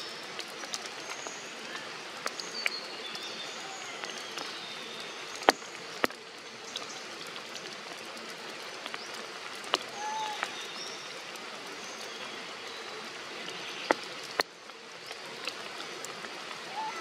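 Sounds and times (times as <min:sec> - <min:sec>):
rain on foliage: 0:00.0 - 0:17.0.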